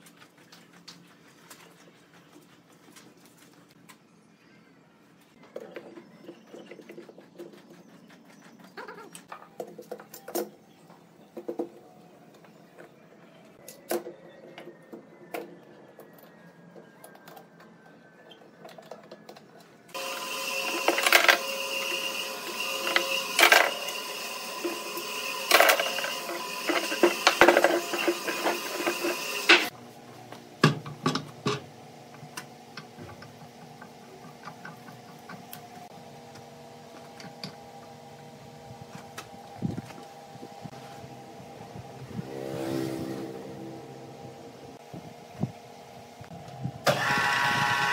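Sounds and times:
loud machine hum: 0:19.9 - 0:29.7, 0:35.7 - 0:47.9.

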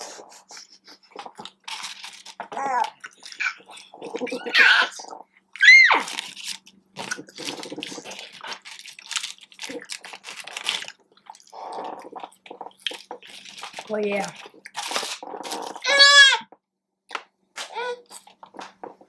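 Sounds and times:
paper wrapper crinkling: 0:01.1 - 0:05.0, 0:05.6 - 0:15.9
chewing with lip smacks: 0:01.1 - 0:15.8
mumbled vocal sounds: 0:03.6 - 0:05.3.

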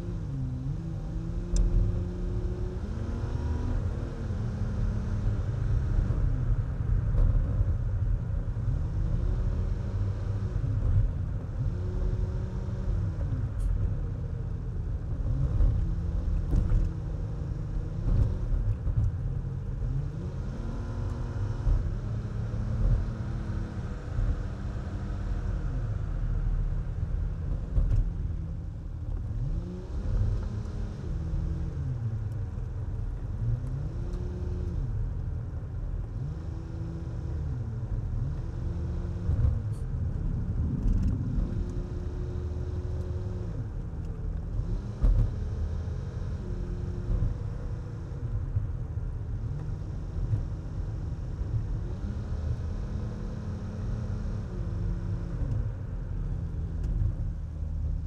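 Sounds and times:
road rumble: 0:00.0 - 0:58.0.

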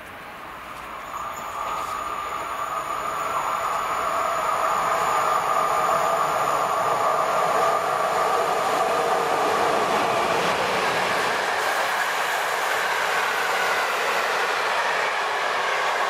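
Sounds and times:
train wheels rumbling on rails: 0:00.0 - 0:16.0.

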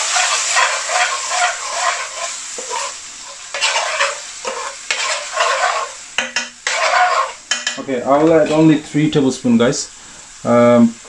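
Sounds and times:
metal spoon scraping a pan: 0:00.0 - 0:08.7
onions sizzling in a pan: 0:00.0 - 0:11.0.

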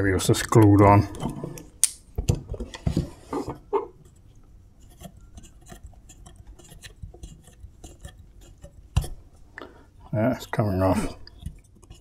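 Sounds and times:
light clicks and scrapes: 0:02.5 - 0:12.0.

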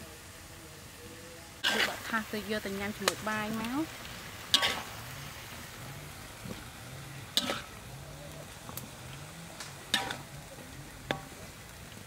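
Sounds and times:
faint steady sizzle: 0:00.0 - 0:12.0
metal cookware clinking: 0:04.5 - 0:04.9, 0:07.3 - 0:07.7, 0:09.9 - 0:10.3.

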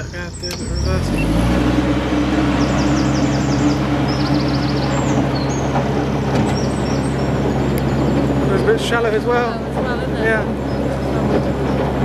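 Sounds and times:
birds chirping: 0:00.0 - 0:12.0
diesel boat engine running: 0:00.0 - 0:12.0.

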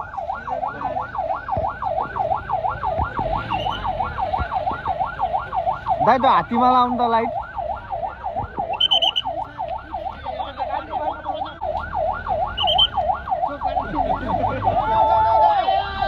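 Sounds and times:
electronic siren yelping: 0:00.0 - 0:16.0
high chirps: 0:08.7 - 0:09.3, 0:12.5 - 0:13.0.

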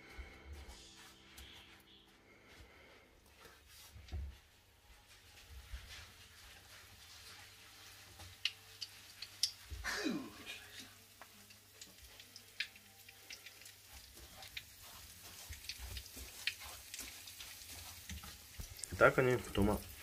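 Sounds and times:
frying oil sizzle: 0:05.8 - 0:20.0
fork clicking against glass bowls: 0:08.4 - 0:09.6.

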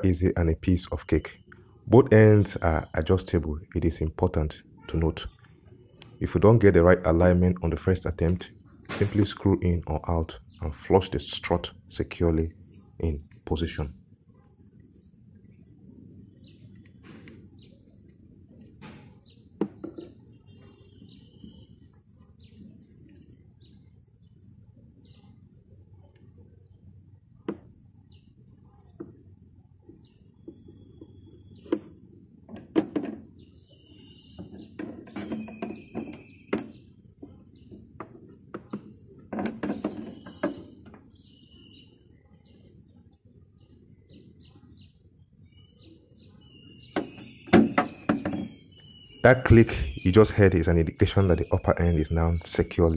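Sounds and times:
birds chirping: 0:00.0 - 0:52.9
gas strut clicks and knocks: 0:32.5 - 0:33.2, 0:34.4 - 0:41.0, 0:47.0 - 0:48.5.

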